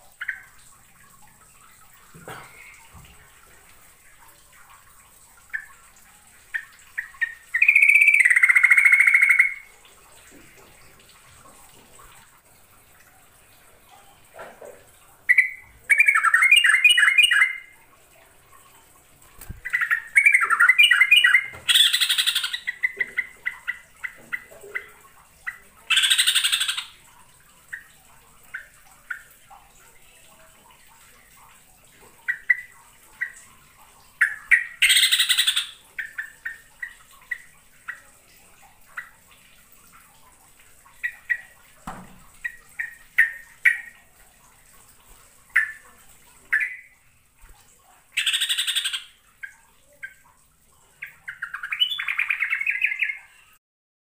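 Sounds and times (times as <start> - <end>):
bird singing chattering notes: 6.6 - 9.7, 15.3 - 17.8, 19.6 - 27.0, 51.0 - 53.3.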